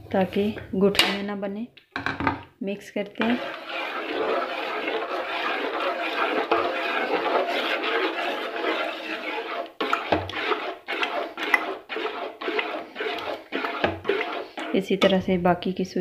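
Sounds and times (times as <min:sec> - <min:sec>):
spoon scraping steel pot: 0:03.0 - 0:15.4
metal spoon stirring wet mixture: 0:03.0 - 0:15.8.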